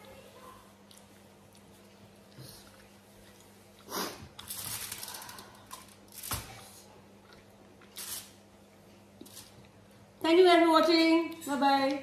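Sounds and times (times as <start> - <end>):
aluminium foil crinkling: 4.4 - 6.6, 7.9 - 8.4, 9.2 - 9.6.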